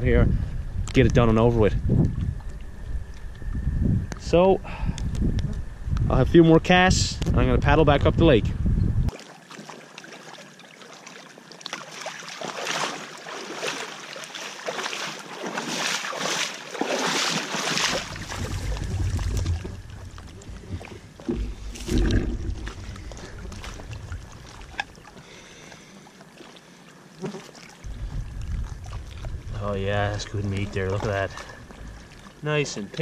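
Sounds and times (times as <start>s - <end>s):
wind buffeting microphone: 0.0s - 9.1s, 17.8s - 25.0s, 27.8s - 32.1s
water splashing and swishing: 9.1s - 33.0s.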